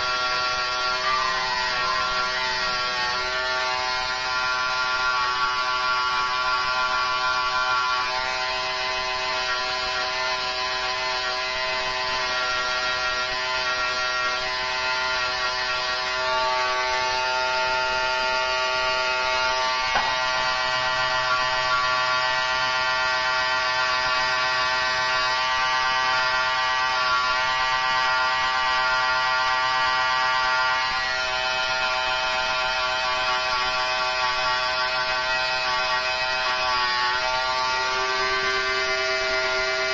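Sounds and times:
hair trimmer buzzing: 0.0s - 39.9s.

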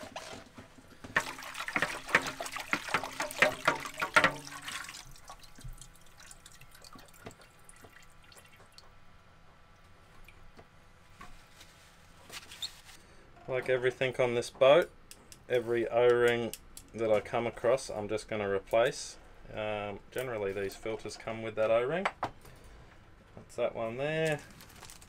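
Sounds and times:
liquid sloshing and splashing: 0.0s - 9.0s
liquid trickling and dripping: 1.1s - 9.0s.

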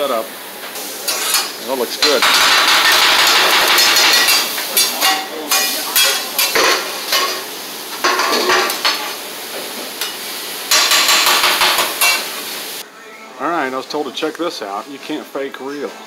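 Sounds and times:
meat sizzling: 0.0s - 12.8s
metal spatulas scraping griddle: 1.1s - 7.4s, 8.0s - 9.2s.

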